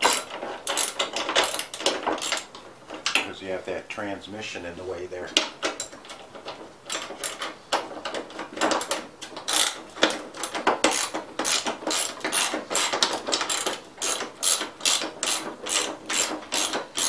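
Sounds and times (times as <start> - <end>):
socket ratchet clicking: 9.5 - 17.0.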